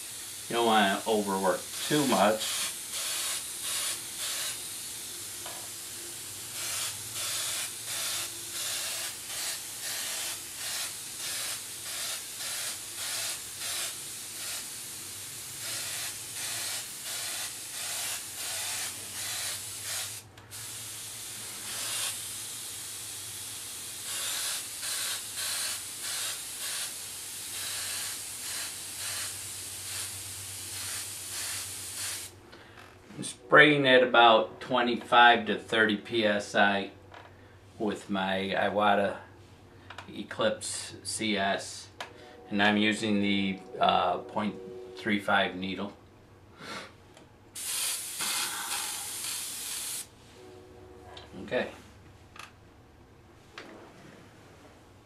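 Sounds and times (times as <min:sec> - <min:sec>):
airbrush spraying air hiss: 0:00.0 - 0:32.4, 0:47.6 - 0:50.3.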